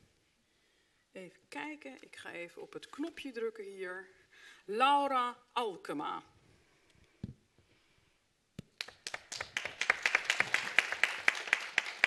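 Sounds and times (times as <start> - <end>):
people clapping: 8.6 - 12.0.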